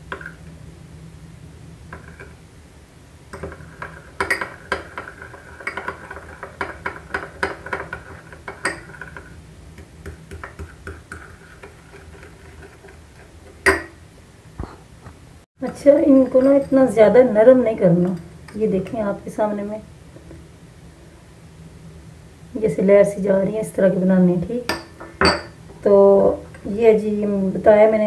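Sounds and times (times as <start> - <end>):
spoon scraping glass bowl: 3.4 - 9.4, 10.3 - 13.9, 15.8 - 17.3.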